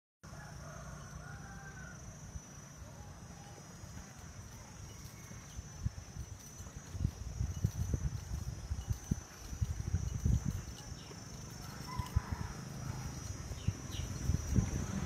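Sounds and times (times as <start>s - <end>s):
insects droning: 0.2s - 15.0s.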